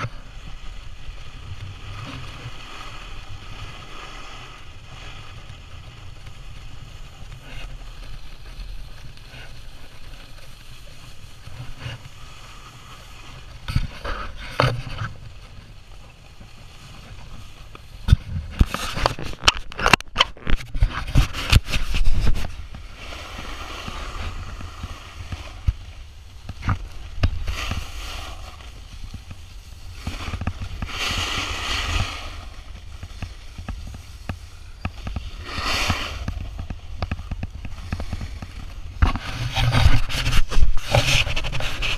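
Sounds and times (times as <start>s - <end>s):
snowboard scraping over snow: 0.0s - 41.9s
wind rumbling on microphone: 0.0s - 41.9s.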